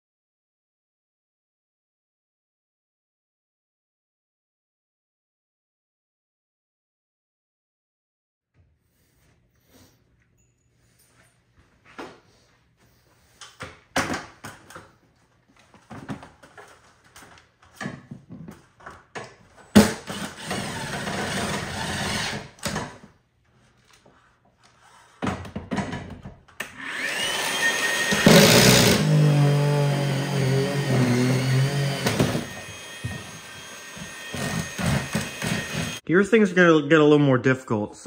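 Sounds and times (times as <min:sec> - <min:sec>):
electric power tool motor whining: 0:20.0 - 0:22.5, 0:26.7 - 0:36.0.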